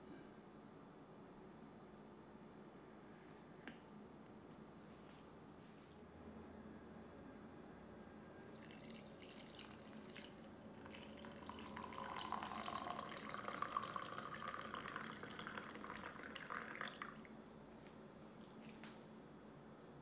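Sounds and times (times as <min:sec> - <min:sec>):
coffee pouring into a glass mug: 0:08.4 - 0:17.5.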